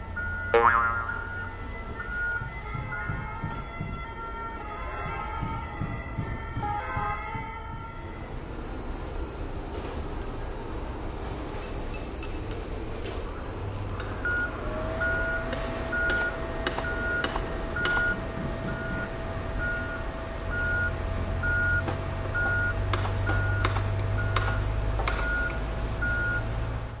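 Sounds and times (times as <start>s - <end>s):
reversing alarm beeping: 0.0s - 26.5s
construction vehicle engine running: 0.0s - 27.0s
scattered knocks: 0.5s - 4.2s, 5.0s - 8.1s, 15.5s - 18.2s
steady whine: 7.6s - 22.6s.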